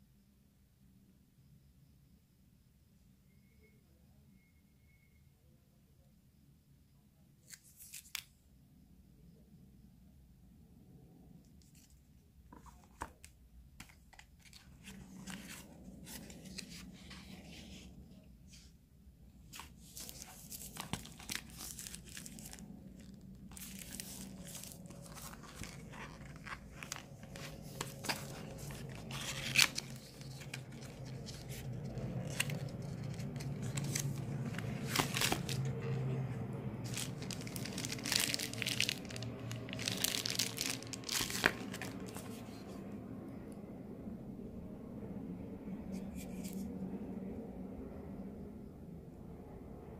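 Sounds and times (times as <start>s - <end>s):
cardboard packaging rustling: 12.5s - 17.8s, 19.5s - 42.7s.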